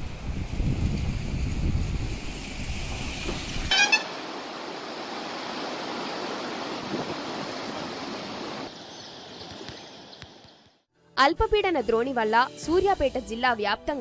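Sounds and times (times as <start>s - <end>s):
water rushing in stream: 2.4s - 8.8s
vehicle horn toot: 3.6s - 4.2s.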